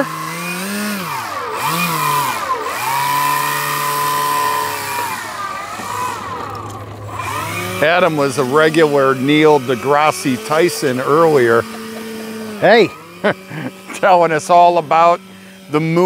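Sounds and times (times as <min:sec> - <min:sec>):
model plane electric motor whining: 0:00.0 - 0:16.0.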